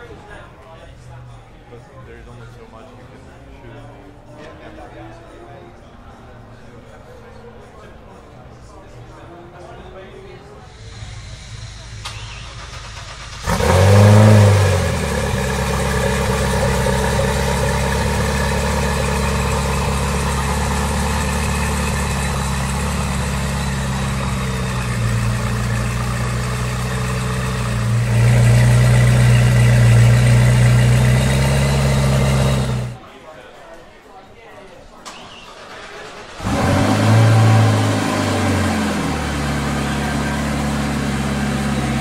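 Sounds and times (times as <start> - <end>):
car engine starting and idling: 10.7 - 33.0, 35.0 - 42.0.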